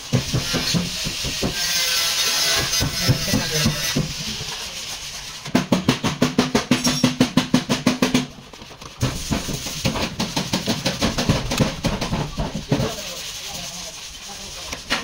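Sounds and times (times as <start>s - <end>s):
music with fast drumming: 9.0s - 13.2s.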